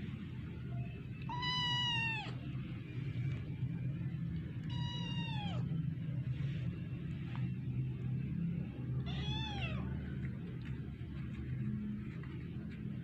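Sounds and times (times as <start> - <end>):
steady low hum: 0.0 - 13.0
kitten meowing: 1.3 - 2.4, 4.7 - 5.6, 9.1 - 9.8.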